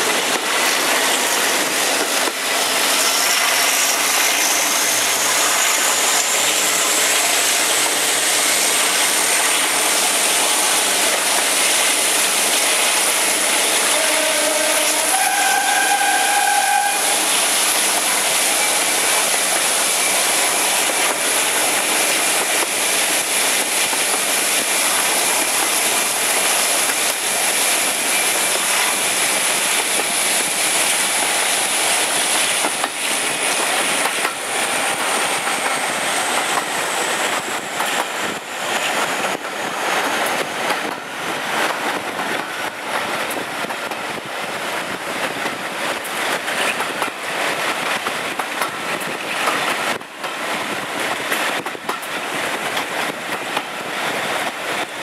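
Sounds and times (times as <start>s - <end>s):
diesel locomotive: 0.0s - 55.0s
wheel and rail noise: 0.0s - 55.0s.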